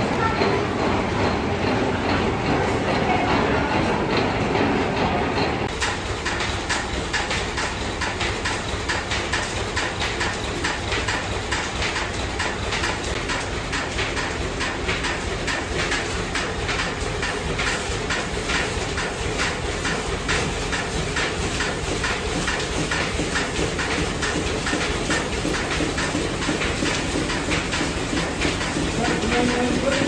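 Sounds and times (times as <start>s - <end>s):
steam engine beating: 0.0s - 30.0s
steam hissing: 15.0s - 30.0s.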